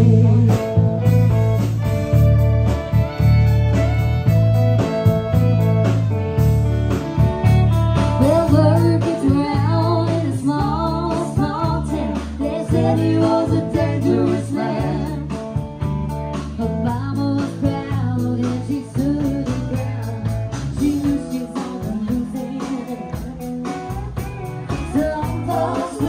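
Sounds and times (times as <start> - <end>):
drums: 0.0 - 26.0
guitar: 0.0 - 26.0
woman singing into microphone: 8.2 - 15.4, 16.6 - 24.0, 24.7 - 26.0.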